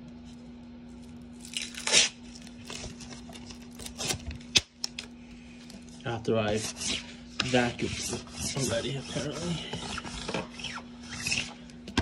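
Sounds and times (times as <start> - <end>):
lint roller sheet ripping: 0.9 - 4.7, 6.5 - 11.7.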